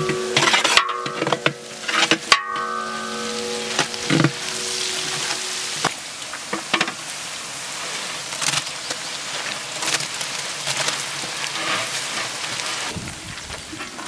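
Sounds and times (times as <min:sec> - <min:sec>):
spatula scraping metal tray: 0:00.0 - 0:04.4
food sizzling in pot: 0:00.0 - 0:14.0.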